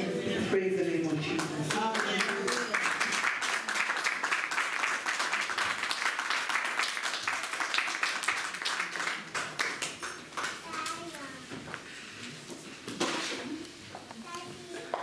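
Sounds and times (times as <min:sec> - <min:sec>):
crowd clapping: 0:01.4 - 0:11.1.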